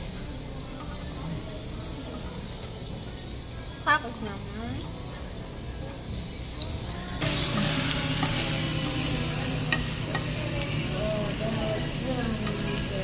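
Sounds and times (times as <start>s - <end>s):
beef sizzling on grill pan: 6.2s - 13.0s
metal tongs clicking on pan: 9.6s - 10.8s, 12.2s - 13.0s.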